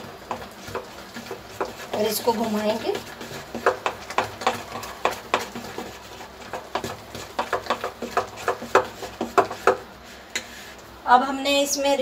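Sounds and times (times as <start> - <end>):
hand slapping wet batter: 3.0 - 9.9.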